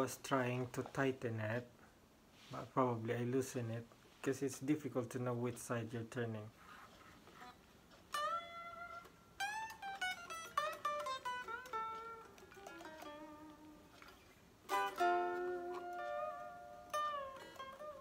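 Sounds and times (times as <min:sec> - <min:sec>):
electric guitar lead phrase: 0:08.1 - 0:14.1, 0:14.7 - 0:18.0.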